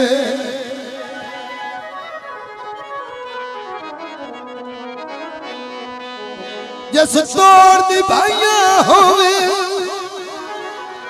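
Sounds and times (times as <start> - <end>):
person singing: 0.0 - 1.6, 6.9 - 11.0
instrumental folk melody over drone: 0.0 - 11.0.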